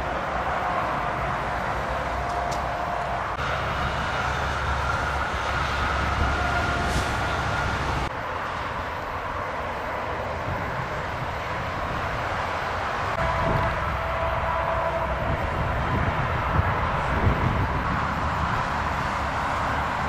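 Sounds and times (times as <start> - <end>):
motorway traffic rumble: 0.0 - 20.0.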